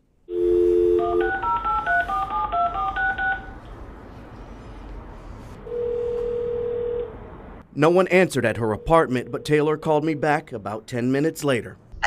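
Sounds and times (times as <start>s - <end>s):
faint phone line hiss: 0.3s - 3.6s
telephone dial tone: 0.3s - 3.6s, 5.7s - 7.1s
touch-tone keypad beeps: 1.1s - 3.5s.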